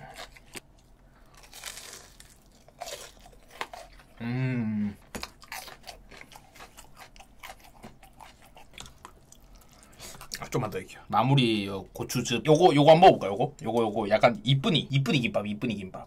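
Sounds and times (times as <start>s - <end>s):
crunching and chewing pepper: 0.0s - 4.2s, 5.0s - 10.7s
closed-mouth hum: 4.1s - 5.2s.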